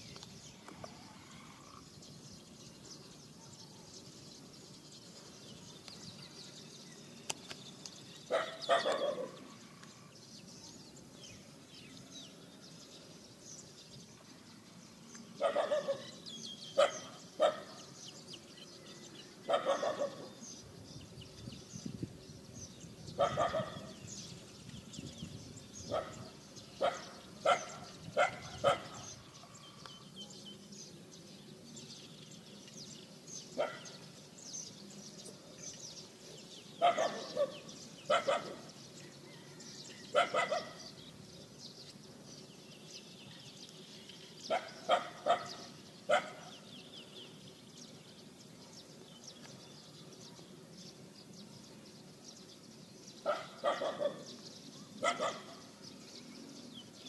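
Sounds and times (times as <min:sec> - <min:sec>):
dogs barking: 0:08.3 - 0:09.4, 0:15.4 - 0:16.2, 0:16.8 - 0:17.8, 0:19.5 - 0:20.4, 0:23.2 - 0:24.0, 0:25.9 - 0:29.2, 0:33.6 - 0:34.0, 0:36.8 - 0:38.7, 0:40.1 - 0:40.9, 0:44.5 - 0:46.6, 0:53.2 - 0:54.3, 0:55.0 - 0:55.7.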